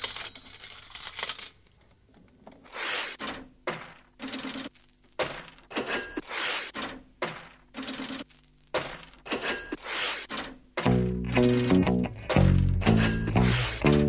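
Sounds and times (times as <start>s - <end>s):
brief high ringing tone: 12.1s - 13.7s.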